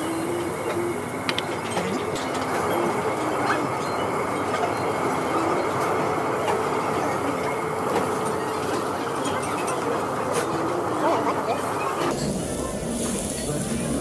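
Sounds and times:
meat sizzling on a grill: 12.1s - 14.0s.

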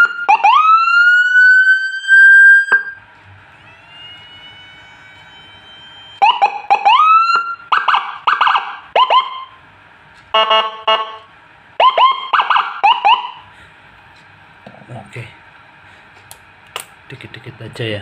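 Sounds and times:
siren tones through horn speaker: 0.0s - 3.0s, 3.6s - 9.6s, 10.4s - 13.4s.

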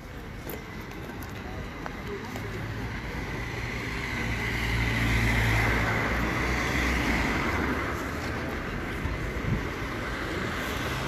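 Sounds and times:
traffic hum: 0.0s - 11.0s.

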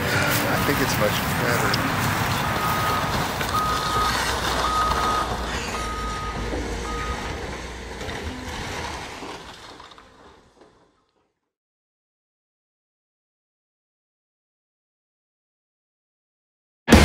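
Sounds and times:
low engine rumble: 0.0s - 11.0s
reversing alarm beeping: 2.4s - 7.4s.

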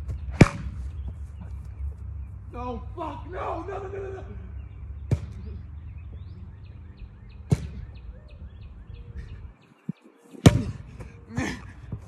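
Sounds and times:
sharp thuds: 0.0s - 1.2s, 5.0s - 5.5s, 7.4s - 8.0s, 10.4s - 11.1s
small birds chirping: 0.0s - 12.0s
steady low rumble: 0.0s - 12.0s.

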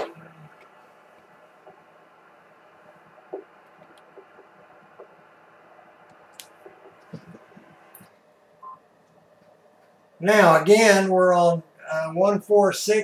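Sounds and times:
radio speaker hiss: 0.0s - 8.2s
light clicks and knocks: 3.0s - 5.4s.

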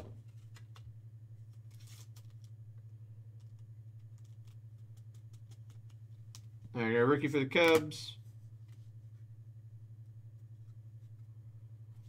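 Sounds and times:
low electrical hum: 0.0s - 12.0s
trading cards clicking: 7.5s - 8.0s.

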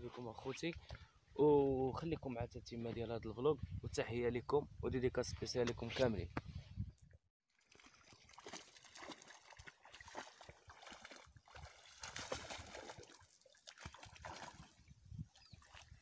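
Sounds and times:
dog splashing in water: 7.6s - 14.9s.

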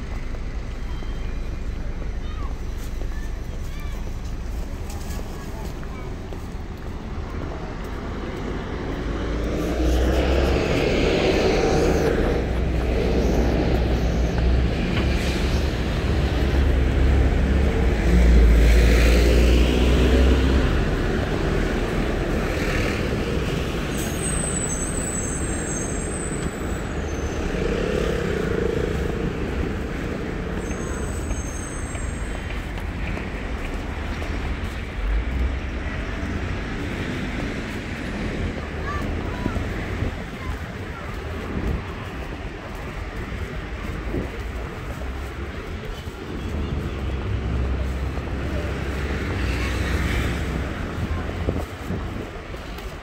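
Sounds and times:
cars going by: 0.0s - 53.0s
short high squeal: 23.9s - 27.4s, 30.6s - 32.3s.

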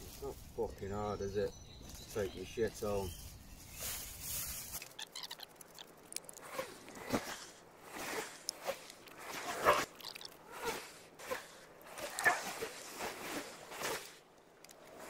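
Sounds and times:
plastic bag crinkling and rustling: 1.9s - 7.4s.

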